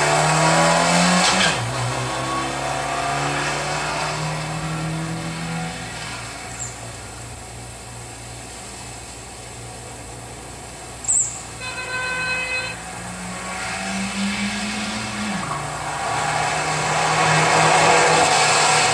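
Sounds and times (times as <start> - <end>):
car engine revving: 0.0 - 6.8, 12.7 - 18.9
sharp high squeak: 11.0 - 12.7
car horn toot: 11.5 - 13.2.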